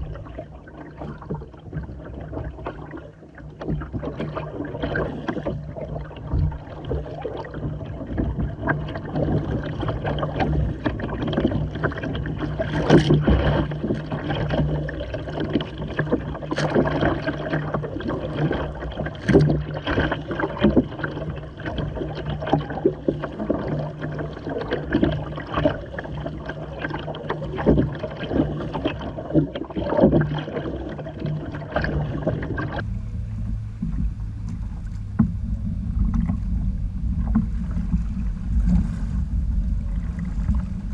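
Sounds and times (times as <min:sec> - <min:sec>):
water slapping against kayak hull: 0:00.0 - 0:40.9
steady low rumble: 0:32.8 - 0:40.9.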